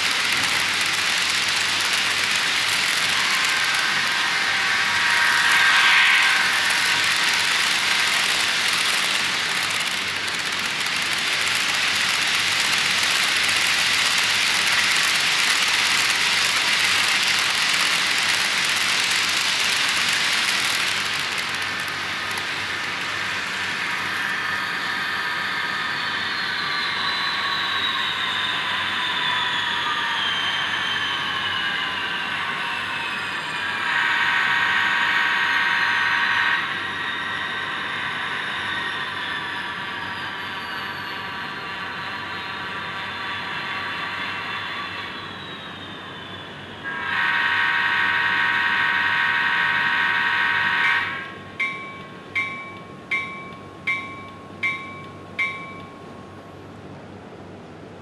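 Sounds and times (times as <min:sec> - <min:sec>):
model train wheels rattling: 0:00.0 - 0:24.3
model locomotive whine: 0:00.0 - 0:58.0
wheel squeal: 0:23.2 - 0:55.8.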